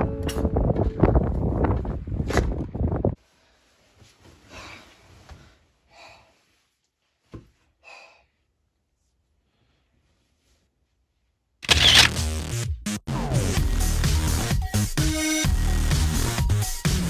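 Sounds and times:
faint breaths: 0:03.2 - 0:06.8
loud music: 0:12.1 - 0:17.0.

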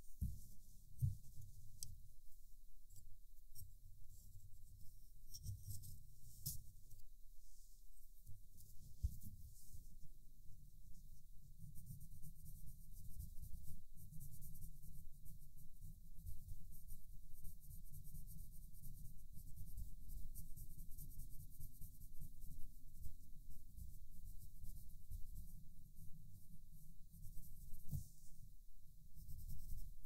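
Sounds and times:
colored pencil scratching paper: 0:02.9 - 0:10.2, 0:10.9 - 0:30.0.

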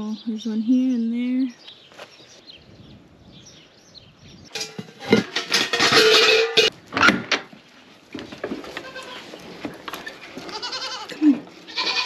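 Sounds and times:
barn door rattling and scraping: 0:04.5 - 0:12.0.

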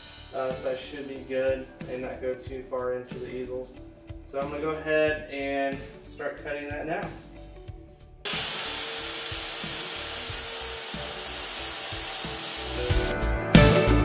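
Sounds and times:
circular saw cutting plywood: 0:08.3 - 0:13.1
guitar music: 0:12.3 - 0:14.0.

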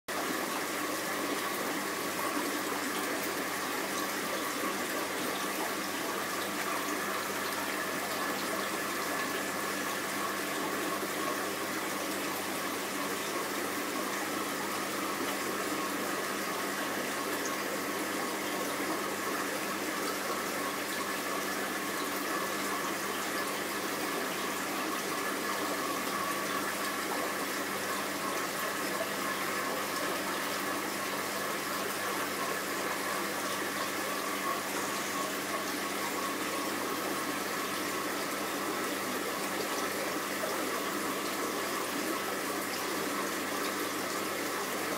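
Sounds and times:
aquarium water running: 0:00.1 - 0:44.9
faint constant hum: 0:00.1 - 0:44.9.

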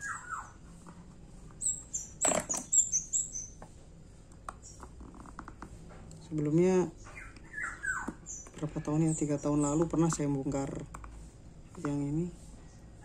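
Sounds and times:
small animal chirping: 0:00.0 - 0:00.8, 0:01.6 - 0:03.6, 0:07.0 - 0:10.1.

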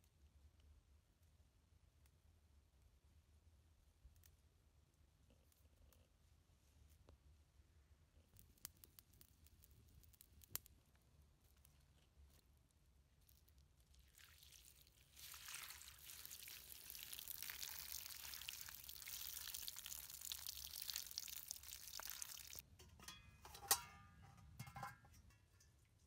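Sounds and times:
water pouring and splashing: 0:14.0 - 0:22.6
pot knocking and clinking: 0:22.8 - 0:25.8.

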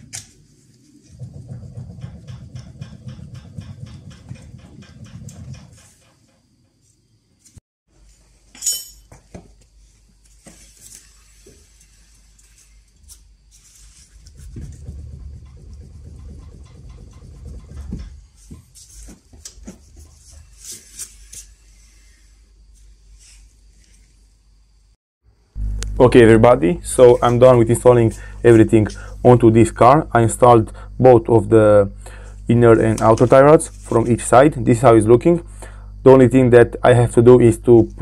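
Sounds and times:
wheel knocking when rocked: 0:01.0 - 0:06.6, 0:14.2 - 0:19.4
sharp metallic clink: 0:08.5 - 0:09.1.

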